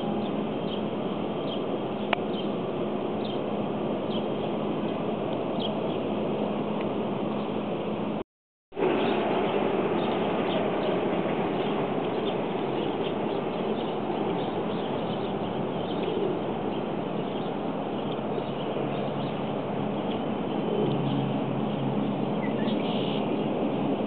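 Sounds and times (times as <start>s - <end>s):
small birds chirping: 0.2s - 2.6s, 3.2s - 6.1s, 11.6s - 23.6s
steady rushing background noise: 8.8s - 24.0s.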